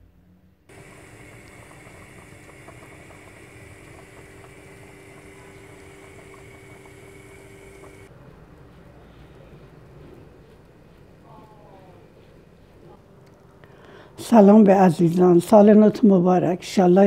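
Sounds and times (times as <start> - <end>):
steady hum: 0.6 - 8.1
sauce bubbling in a pot: 0.7 - 8.1.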